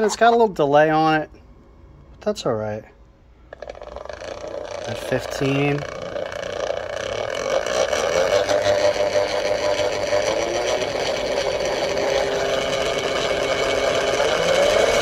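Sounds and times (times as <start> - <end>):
electric motor whining: 3.4 - 15.0.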